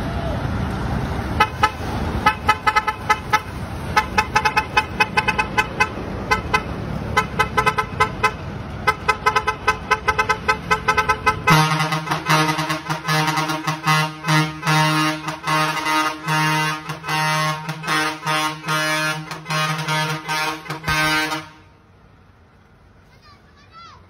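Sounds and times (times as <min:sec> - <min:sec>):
truck air horns short toots: 0:01.4 - 0:21.8
deep horn long blast: 0:09.2 - 0:21.8.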